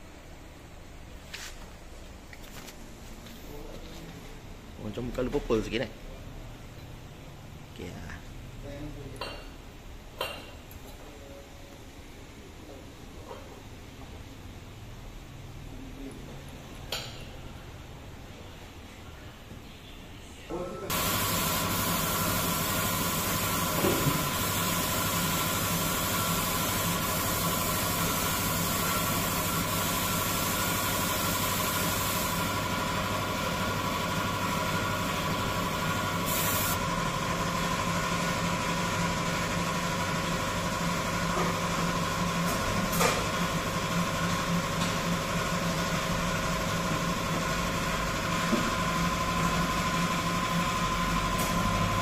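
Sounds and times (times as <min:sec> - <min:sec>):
machine humming with whine: 0:20.9 - 0:42.4
burst of hiss: 0:36.2 - 0:36.8.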